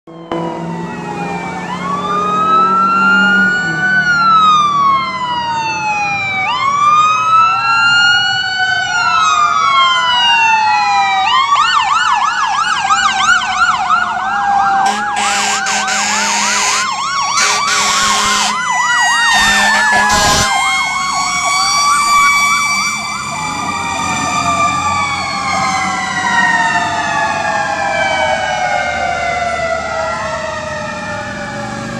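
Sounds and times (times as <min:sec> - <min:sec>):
fast siren yelp: 0:00.1 - 0:31.9
sirens wailing: 0:00.1 - 0:31.9
loud horn blasts: 0:14.8 - 0:18.7, 0:19.3 - 0:20.9.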